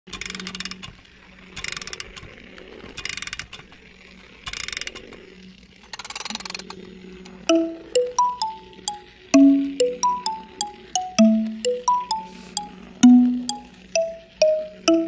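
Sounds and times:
toy gear ratcheting clicks: 0.1 - 1.0, 1.6 - 2.3, 3.0 - 3.6, 5.9 - 6.8
faint steady hum: 6.8 - 15.0.

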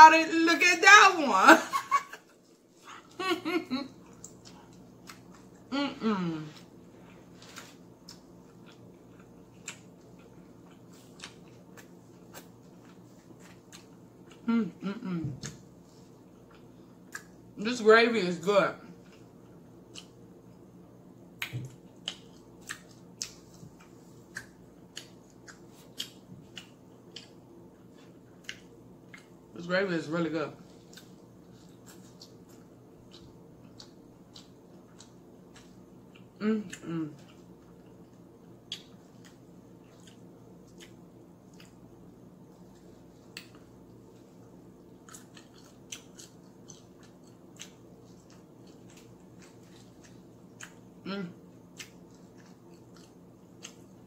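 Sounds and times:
faint steady hum: 0.0 - 54.0
wet eating clicks and smacks: 16.5 - 17.4, 21.3 - 27.4, 30.9 - 42.0, 43.2 - 43.9, 44.8 - 51.0, 51.6 - 54.0.

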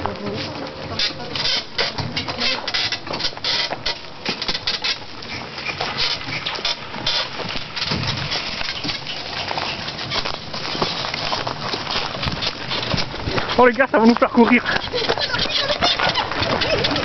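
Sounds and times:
horse hooves on ground: 0.0 - 17.0
wooden cart rattling: 0.0 - 17.0.

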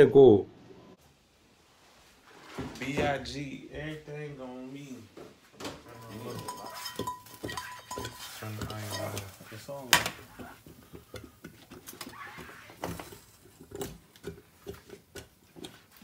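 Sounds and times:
pots and utensils knocking: 5.8 - 12.1.

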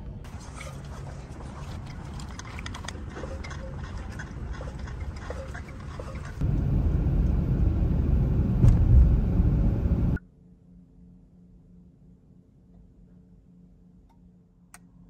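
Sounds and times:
low hum: 0.0 - 15.0
car cabin road noise: 6.4 - 10.2.

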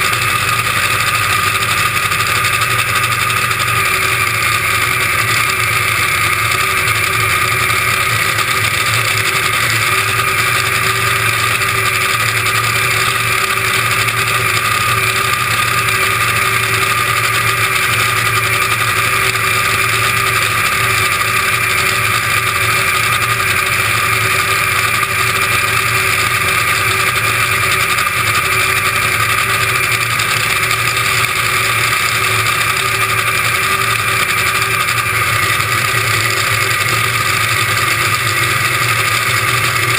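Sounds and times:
dragster engine idling: 0.0 - 39.9.

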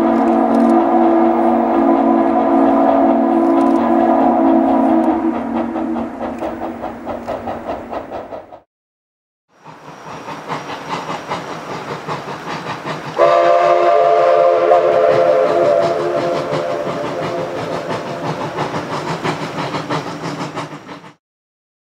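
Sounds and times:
steam whistle: 0.0 - 6.0, 13.2 - 18.4
steam locomotive exhaust beats: 0.0 - 8.7, 9.6 - 21.2.

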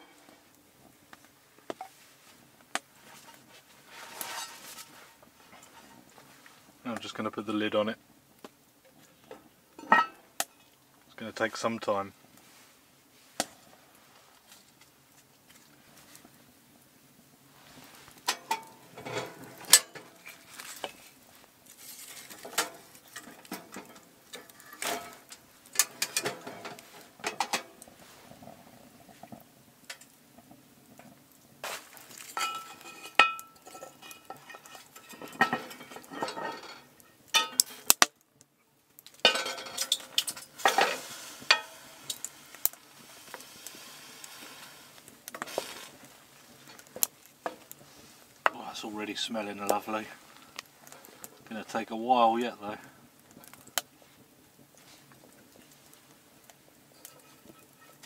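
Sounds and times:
metal cookware clanking and scraping: 3.1 - 6.1, 9.8 - 10.2, 18.2 - 21.1, 21.8 - 27.8, 31.6 - 38.0, 39.2 - 46.0, 56.9 - 58.0.

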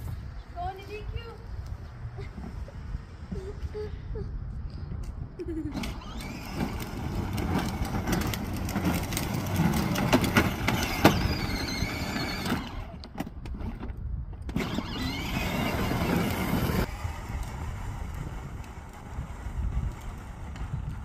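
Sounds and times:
plastic wheels rumbling on pavement: 5.5 - 21.0
electric motor whine: 14.5 - 17.5.

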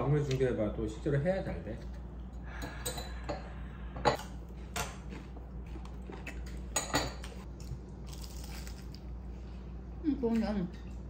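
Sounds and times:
cutlery clinking against plate: 6.7 - 7.4.

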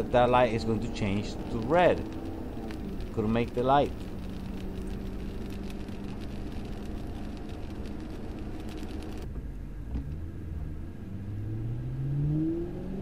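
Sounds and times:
rain ticking on windshield: 0.0 - 9.3
car engine accelerating: 0.0 - 13.0
tyres and engine rumble: 0.0 - 13.0.

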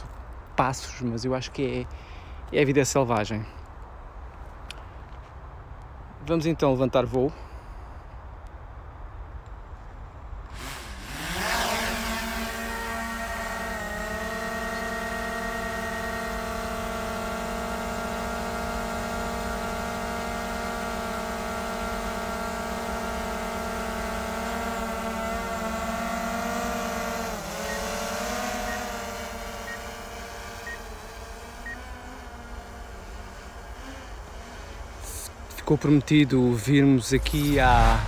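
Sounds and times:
drone propellers whining: 10.5 - 38.0.

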